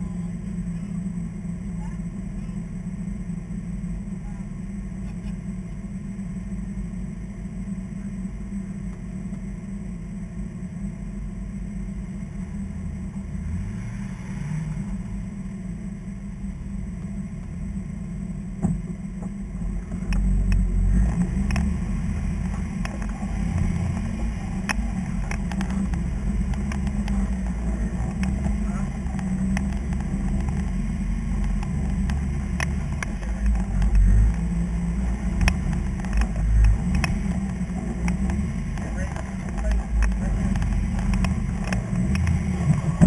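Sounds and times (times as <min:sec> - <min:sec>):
engine running at crawling speed: 0:00.0 - 0:43.0
sharp clicks and knocks: 0:18.6 - 0:43.0.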